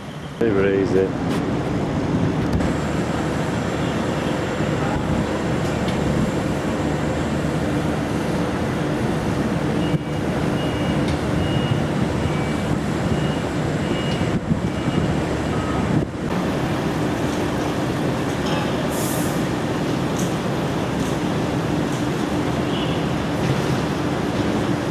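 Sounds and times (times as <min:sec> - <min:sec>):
distant traffic rumble: 0:00.0 - 0:24.9
wind on microphone: 0:11.2 - 0:16.4.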